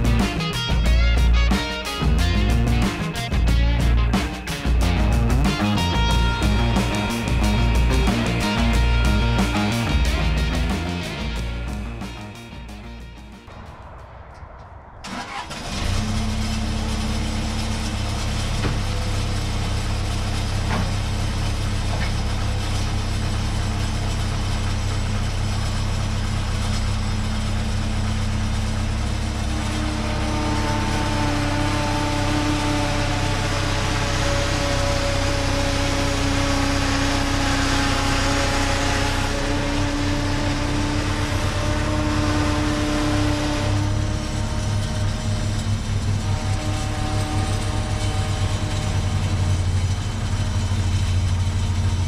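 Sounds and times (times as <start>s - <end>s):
skid steer engine running: 0.0s - 13.5s, 15.1s - 52.0s.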